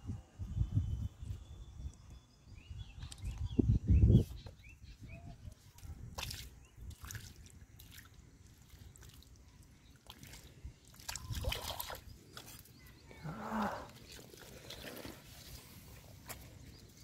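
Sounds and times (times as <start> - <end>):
hands squelching wet mud: 5.5 - 17.0.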